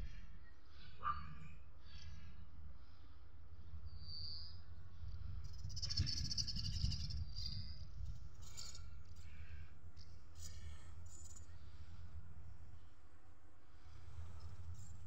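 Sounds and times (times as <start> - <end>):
small birds chirping: 1.8 - 12.0.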